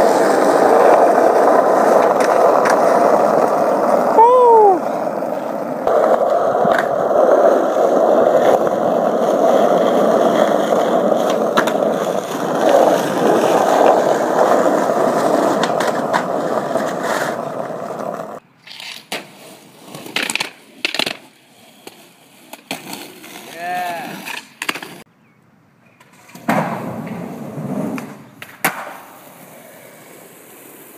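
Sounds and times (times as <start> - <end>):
skateboard clacks: 0.0 - 4.1, 4.8 - 19.3, 27.9 - 29.9
skateboard wheels rolling on asphalt: 0.0 - 30.9.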